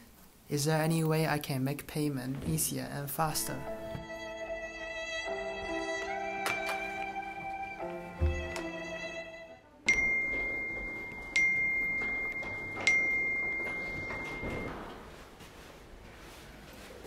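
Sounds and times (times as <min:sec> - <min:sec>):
background music: 0:03.1 - 0:13.5.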